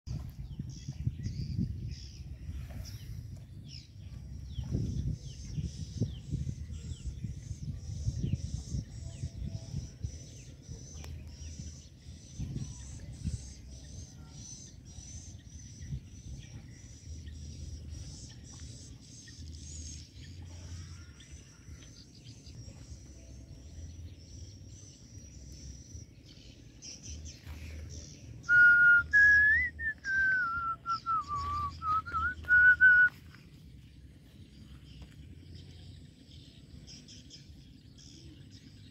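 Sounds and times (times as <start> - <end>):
wavering whistled tone: 28.4 - 33.2.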